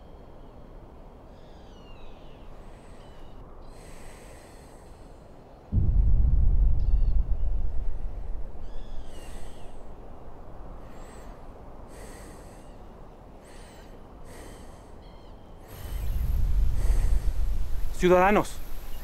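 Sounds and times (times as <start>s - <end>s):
soft airy ambience: 0.0s - 19.0s
low rumble: 5.7s - 11.0s, 15.7s - 19.0s.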